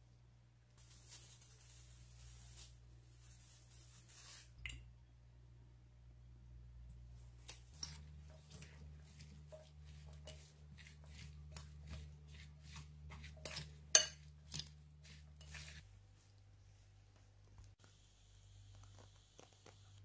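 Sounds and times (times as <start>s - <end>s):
metal spoon scraping glass bowl: 7.8s - 15.8s.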